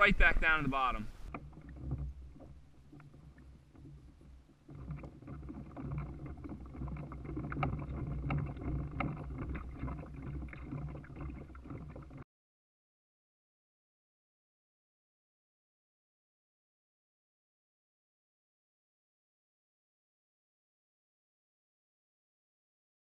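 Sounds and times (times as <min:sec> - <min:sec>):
small waves lapping against kayak: 0:00.0 - 0:12.2.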